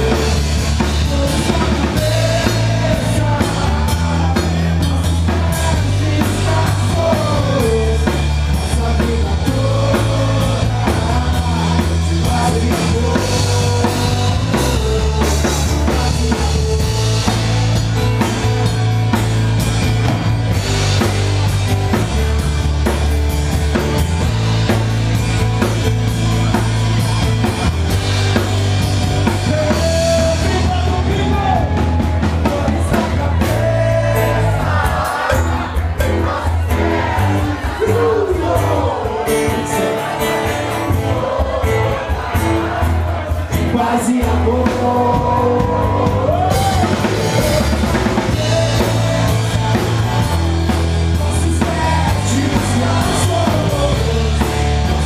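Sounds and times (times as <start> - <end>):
bass guitar: 0.0 - 55.0
drum kit beat: 0.0 - 55.0.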